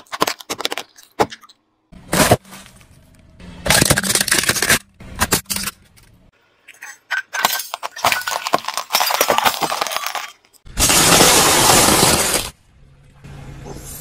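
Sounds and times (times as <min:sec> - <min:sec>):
glass cracking under a tyre: 0:07.3 - 0:12.6.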